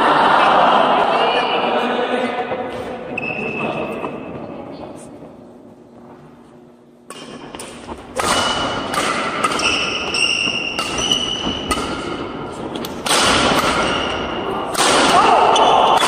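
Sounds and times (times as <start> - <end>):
busy sports hall noise: 0.0 - 16.0
shoes squeaking on court: 3.1 - 5.2, 9.5 - 11.7
racket hitting shuttlecock: 7.1 - 16.0.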